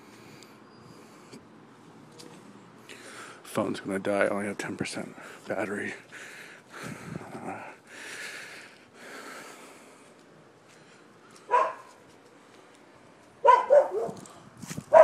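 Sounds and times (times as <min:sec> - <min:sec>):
dog barking: 0:11.5 - 0:11.9, 0:13.4 - 0:14.2.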